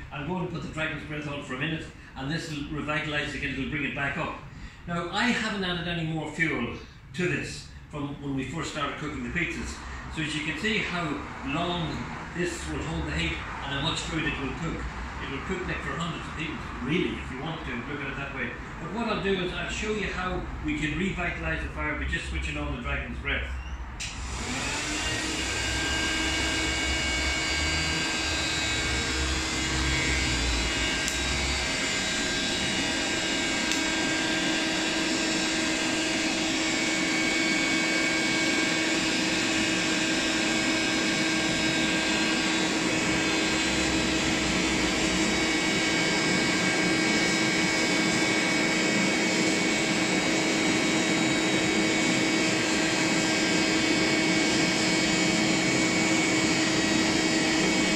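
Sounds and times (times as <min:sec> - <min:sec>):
electric air blower running: 0:08.8 - 0:18.1, 0:24.0 - 0:57.9.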